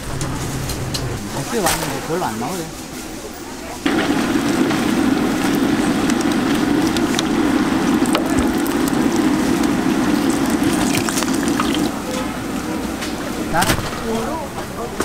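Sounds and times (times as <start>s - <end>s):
deep-frying sizzle and bubbling: 3.6s - 15.0s.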